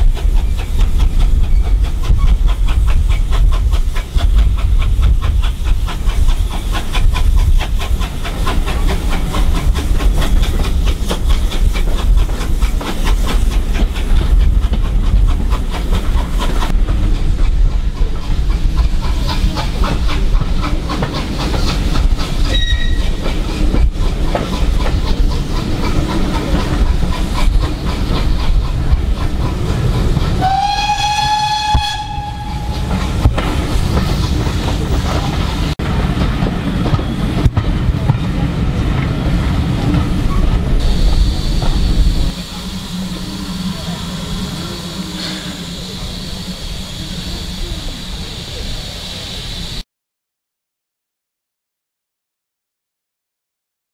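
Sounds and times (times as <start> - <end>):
train wheels clattering on rails: 0.0 - 48.9
steam locomotive whistle: 22.5 - 23.2, 30.4 - 33.0, 40.8 - 49.8.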